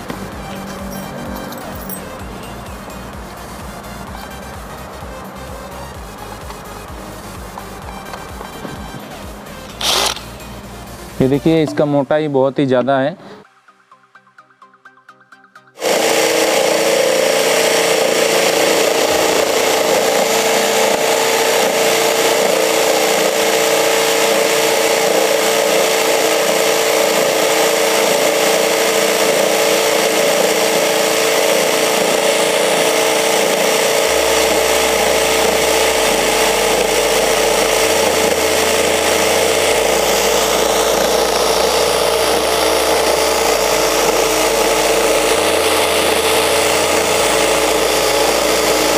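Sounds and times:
electric drill whine: 0.0 - 11.8, 15.8 - 48.9
saw blade cutting wood: 7.6 - 10.4, 15.8 - 48.9.

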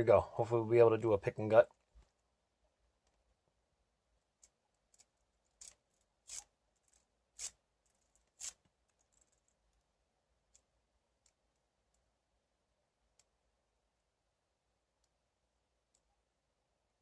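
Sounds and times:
lock pick scraping and clicking: 4.4 - 9.5.

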